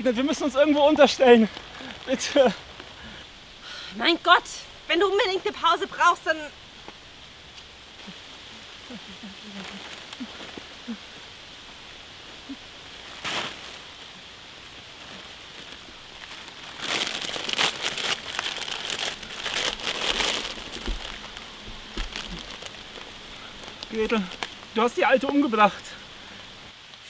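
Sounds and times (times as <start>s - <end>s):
plastic crisp bag crinkling: 14.7s - 24.7s.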